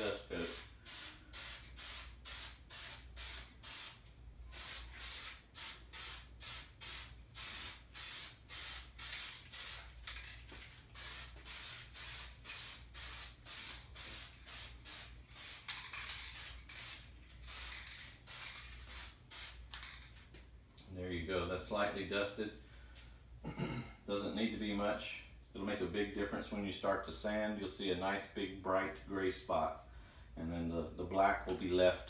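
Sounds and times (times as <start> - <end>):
spray paint can hissing in bursts: 0.0 - 10.2, 10.9 - 19.9.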